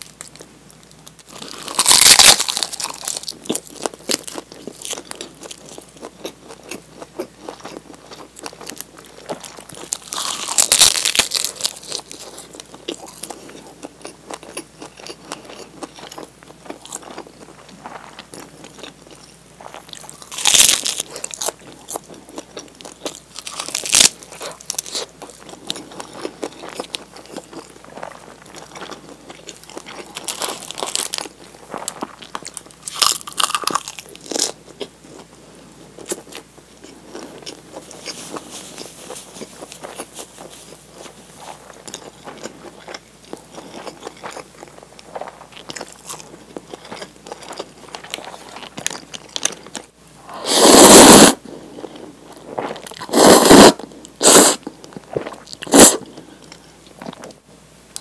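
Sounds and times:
seaweed crunching: 1.4s - 5.6s
chewing: 36.0s - 49.9s.

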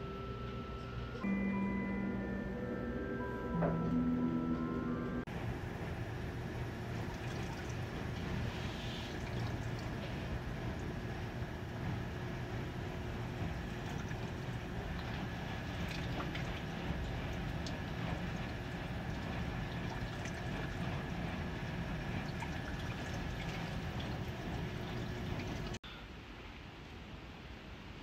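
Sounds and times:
running water: 6.6s - 25.8s
water dripping: 6.8s - 25.8s.

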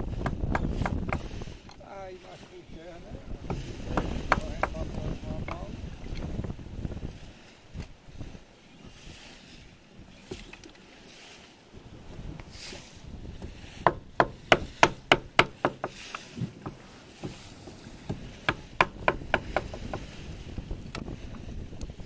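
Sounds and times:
machete chopping firewood: 0.1s - 1.3s.

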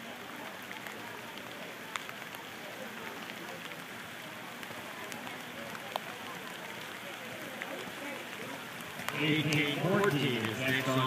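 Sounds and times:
raindrops ticking nearby: 0.0s - 11.0s
steady rain falling: 0.0s - 11.0s.

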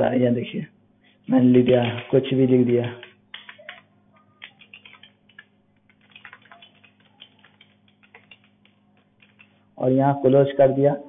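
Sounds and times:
keyboard typing: 1.4s - 9.7s.

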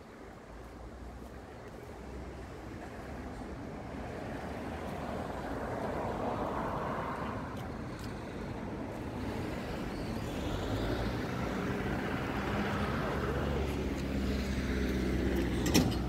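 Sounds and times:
street traffic noise: 0.0s - 16.0s
vehicle passing: 4.0s - 16.0s.

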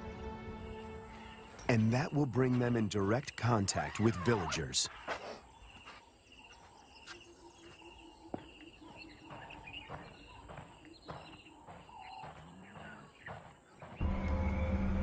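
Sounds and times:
bird calls: 1.0s - 15.0s
footsteps on sandy ground: 4.9s - 14.0s.

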